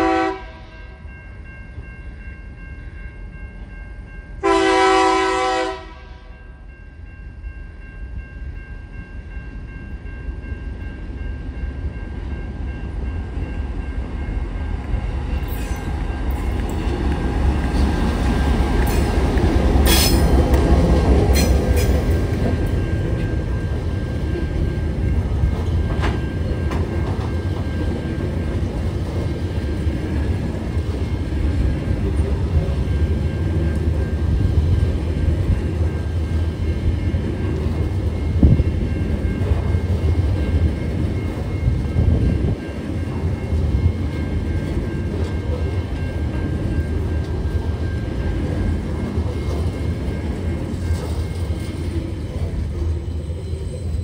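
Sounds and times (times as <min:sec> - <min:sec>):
train wheels rumbling on rail: 0:08.5 - 0:54.0.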